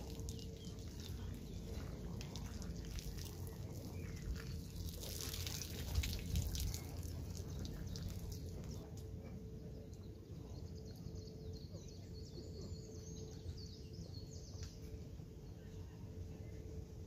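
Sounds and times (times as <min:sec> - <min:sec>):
shower water splashing and dripping: 0:00.0 - 0:08.8
steady low rumble: 0:00.0 - 0:17.0.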